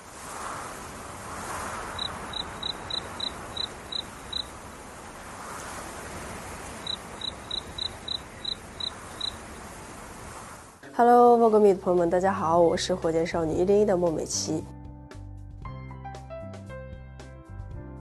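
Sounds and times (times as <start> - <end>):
cricket chirping: 1.5 - 9.6.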